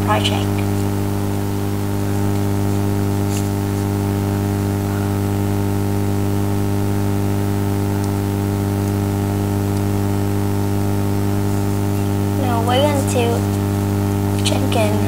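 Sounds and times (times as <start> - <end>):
person speaking: 0.0 - 2.3, 12.3 - 13.6, 14.4 - 15.0
electrical mains hum: 0.0 - 15.0.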